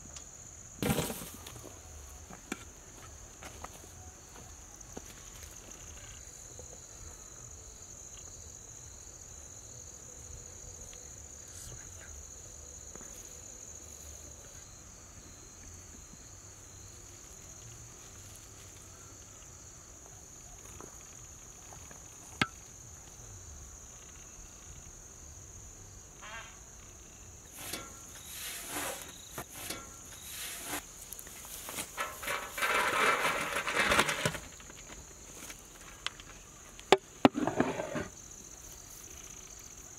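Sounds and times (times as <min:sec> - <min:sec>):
ladle scraping rice in metal pot: 0:27.5 - 0:30.9, 0:32.0 - 0:34.3, 0:37.3 - 0:38.1.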